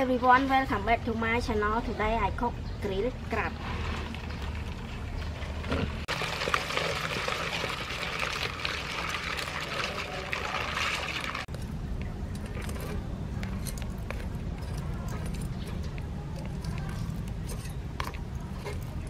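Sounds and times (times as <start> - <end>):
crackling on charcoal grill: 3.3 - 19.0
crabs scrabbling in plastic bowl: 3.7 - 11.5.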